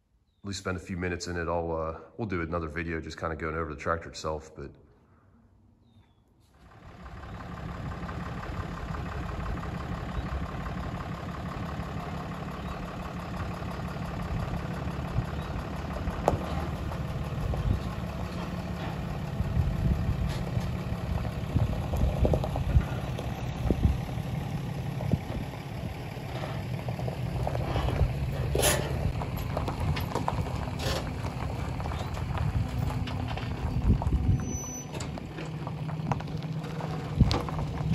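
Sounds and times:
pickup truck engine running: 6.6s - 37.9s
trailer clunks and knocks: 13.4s - 37.9s.

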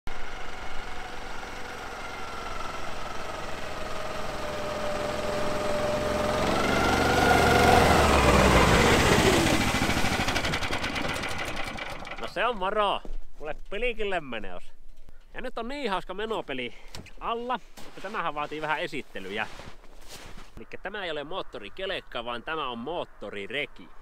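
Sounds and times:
tracked machine engine passing: 0.1s - 12.5s.

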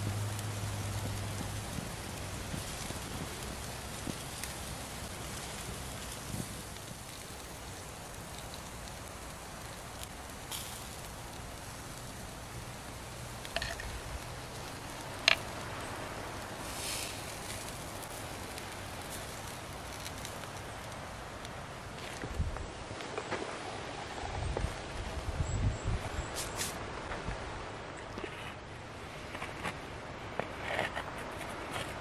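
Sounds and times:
food sizzling on a grill: 0.0s - 22.2s
fire crackling and popping: 0.0s - 25.2s.

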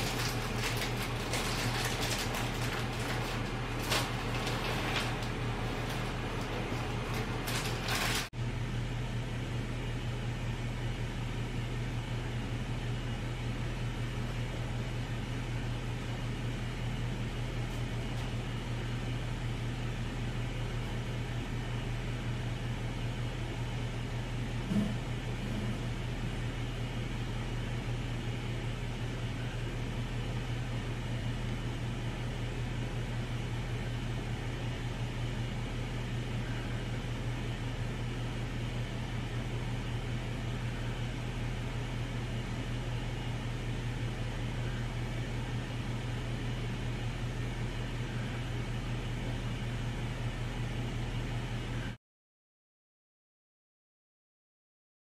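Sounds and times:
low mechanical hum: 0.0s - 52.0s.

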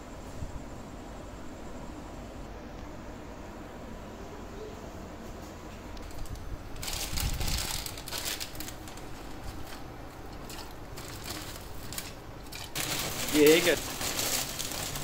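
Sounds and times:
steady hiss: 0.0s - 15.0s
plastic packet crinkling: 6.0s - 15.0s.

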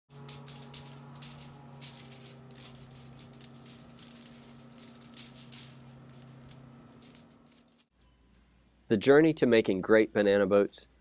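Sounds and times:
aluminium foil crinkling: 0.1s - 7.9s
steady low hum: 0.1s - 8.9s.

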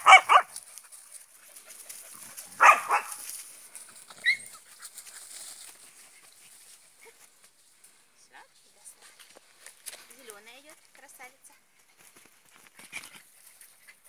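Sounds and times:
dog yelping: 0.0s - 0.5s, 2.6s - 3.2s, 4.2s - 4.6s
dogs barking: 0.0s - 0.5s, 2.5s - 3.2s.

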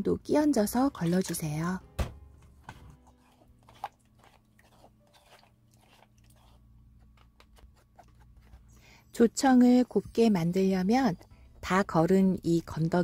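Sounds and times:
spatula scraping puree through strainer: 3.0s - 6.6s.

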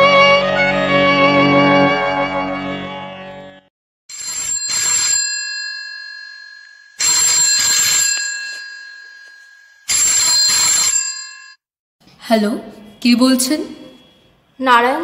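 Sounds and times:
telephone ringing: 4.1s - 11.6s.

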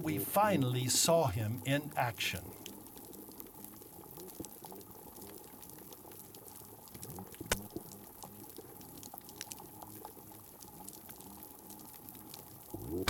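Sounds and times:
snapping shrimp clicks underwater: 2.6s - 13.0s.

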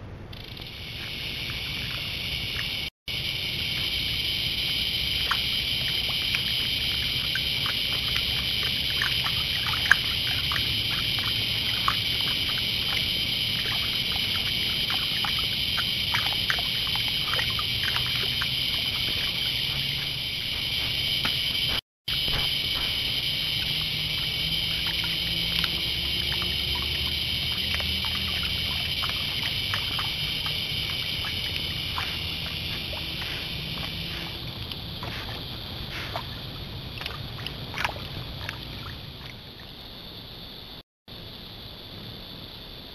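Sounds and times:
night insects chorus: 0.1s - 42.9s
water splashes and drips: 1.0s - 2.9s, 3.5s - 39.8s.

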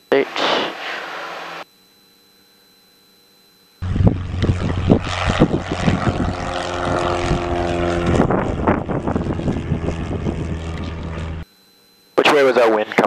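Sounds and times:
wind buffeting microphone: 3.8s - 11.4s
plane engine and propeller droning: 3.8s - 13.0s.

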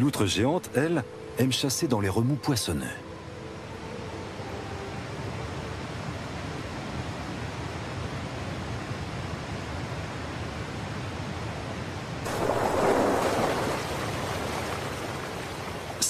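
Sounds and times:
river rapids and waterfall rushing: 12.2s - 16.0s.

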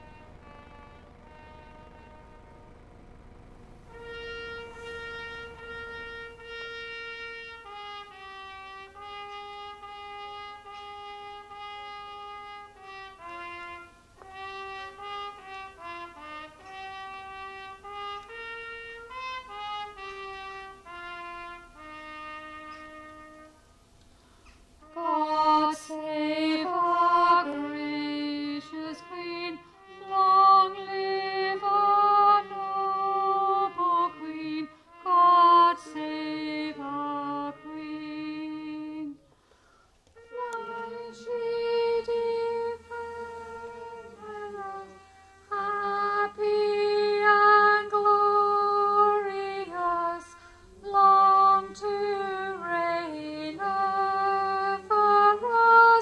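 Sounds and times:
person singing slow song: 0.0s - 23.6s, 24.8s - 39.3s, 40.2s - 56.0s
instrumental accompaniment: 0.0s - 25.7s.

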